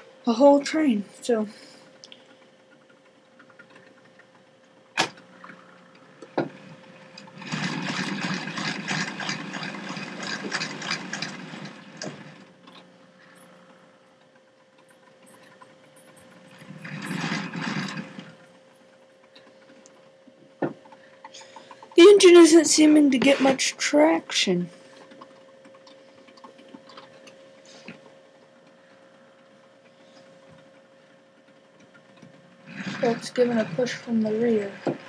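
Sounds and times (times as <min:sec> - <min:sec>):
model train motors whirring: 0:04.9 - 0:13.9, 0:15.3 - 0:18.6, 0:31.4 - 0:35.0
wheels clattering on track: 0:07.2 - 0:12.4.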